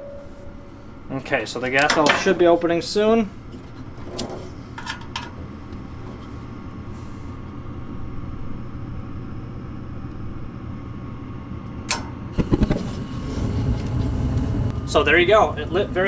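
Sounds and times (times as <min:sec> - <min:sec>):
furnace fan humming: 0:00.0 - 0:16.0
gas valve click: 0:11.9 - 0:12.2
burners lighting with low thumps: 0:12.2 - 0:16.0.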